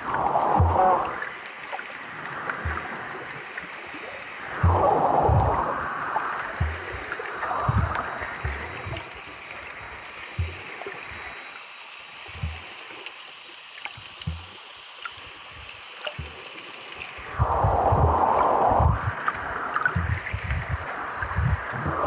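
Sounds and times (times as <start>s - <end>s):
underwater hiss of moving water: 0.0s - 22.0s
dull low thumps: 0.6s - 1.0s, 2.6s - 2.9s, 4.6s - 5.8s, 6.5s - 9.2s, 10.4s - 10.7s, 12.4s - 12.7s, 14.0s - 14.5s, 15.6s - 16.4s, 17.3s - 22.0s
faint clicks: 12.2s - 22.0s.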